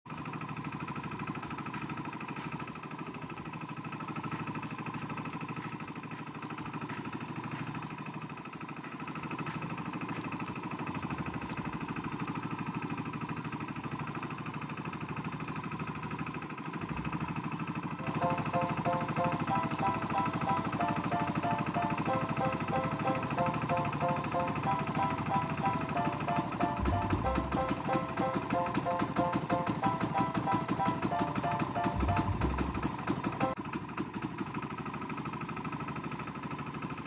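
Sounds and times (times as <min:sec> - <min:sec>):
boat engine humming: 0:18.0 - 0:33.6.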